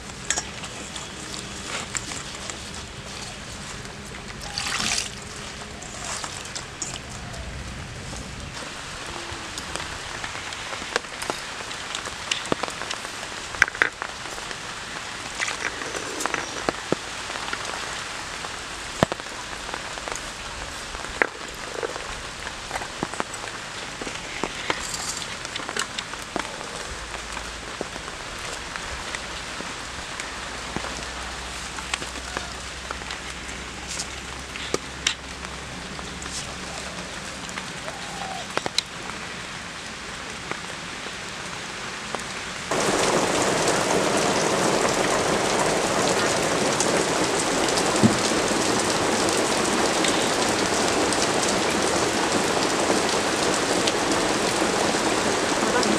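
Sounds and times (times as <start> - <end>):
water pattering: 0.0 - 39.2.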